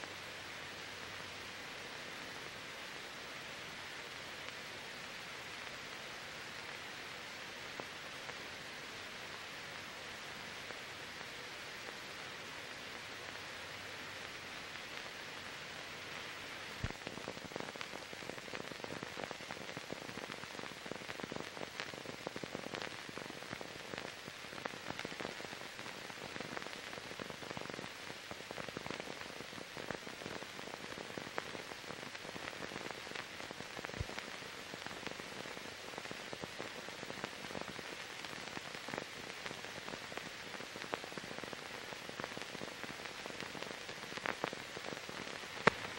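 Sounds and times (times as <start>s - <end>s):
film hiss with crackles and clicks: 0.0s - 45.9s.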